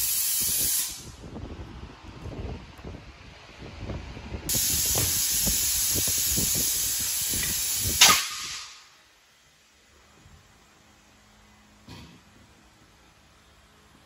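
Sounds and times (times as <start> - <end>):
compressed air hissing into tire: 0.0 - 1.2, 4.5 - 8.8
loud burst of air: 0.0 - 1.6, 3.7 - 9.0.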